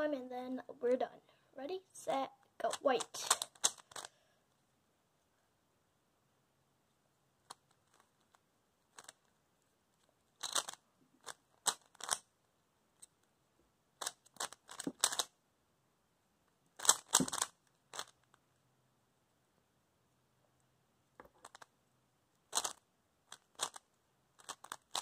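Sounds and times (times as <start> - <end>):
puzzle cube clacking turns: 2.6 - 4.2, 7.4 - 9.4, 10.0 - 12.3, 14.0 - 15.3, 16.8 - 18.4, 21.2 - 21.8, 22.4 - 25.0.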